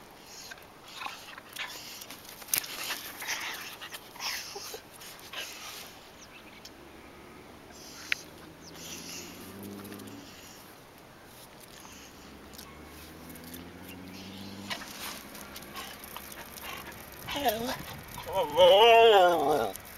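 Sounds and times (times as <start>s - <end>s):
dogs breathing hard and scuffling: 0.0s - 6.2s, 7.6s - 19.9s.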